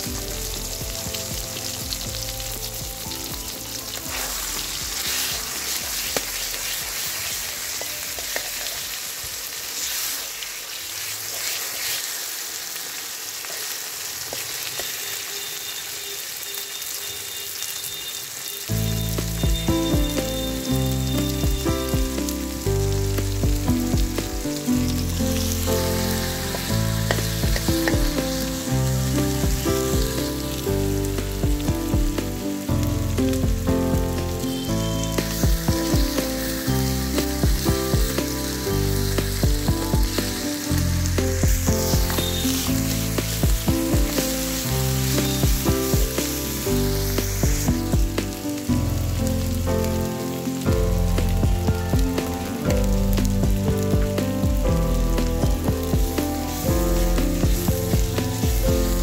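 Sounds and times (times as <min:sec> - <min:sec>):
background music with bass: 0:00.0 - 0:08.8, 0:18.7 - 0:59.0
fish frying in hot oil: 0:00.0 - 0:59.0
metal spatula scraping wok: 0:03.8 - 0:12.4, 0:24.7 - 0:30.7, 0:34.4 - 0:47.4.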